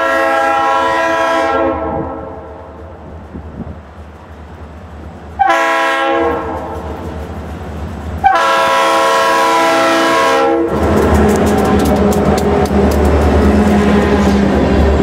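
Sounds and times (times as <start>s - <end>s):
locomotive air horn blasts: 0.0s - 2.6s, 5.4s - 6.8s, 8.2s - 10.8s
train wheels clicking over rails: 6.3s - 8.8s, 10.6s - 15.0s
diesel engine humming: 10.7s - 15.0s.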